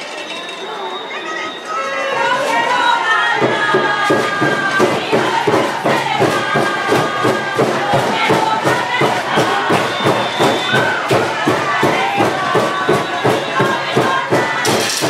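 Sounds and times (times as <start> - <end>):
spectators cheering and shouting: 0.0 - 15.0
music with fast steady beat: 3.4 - 15.0.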